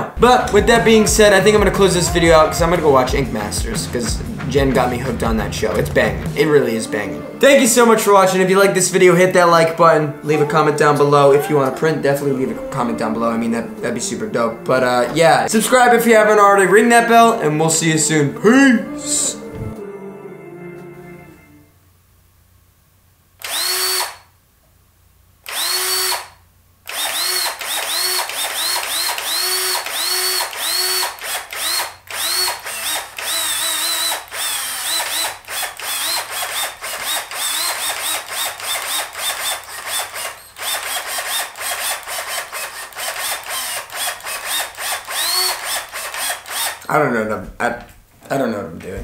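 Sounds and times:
cordless drill whirring: 23.4s - 24.3s, 25.4s - 46.9s.

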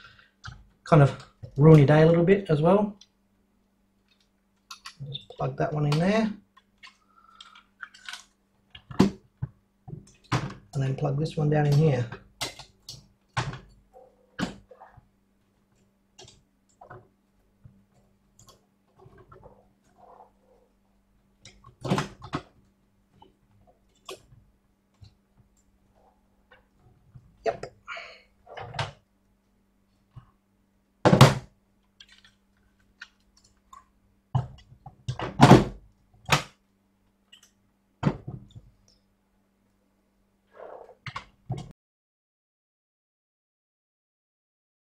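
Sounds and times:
faint steady hum: 0.0s - 41.7s
plastic parts knocking and clicking: 5.9s - 10.8s
plastic parts scraping: 6.8s - 9.1s.

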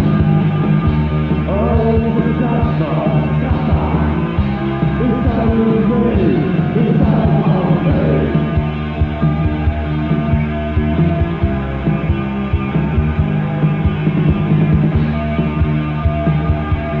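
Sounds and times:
drum beat: 0.0s - 9.6s
goth rock instrumental: 0.0s - 17.0s.

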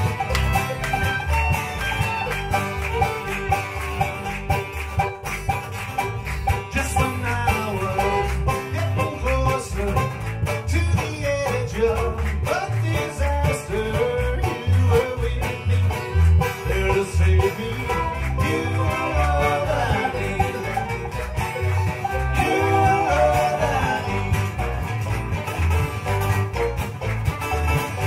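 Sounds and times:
banjo: 0.0s - 28.0s
strummed acoustic guitars: 0.0s - 28.0s
men singing: 6.7s - 21.2s, 21.9s - 24.9s.

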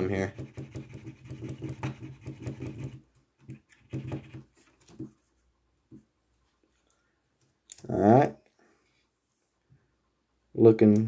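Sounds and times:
paint pen nib tapping: 0.3s - 4.5s.

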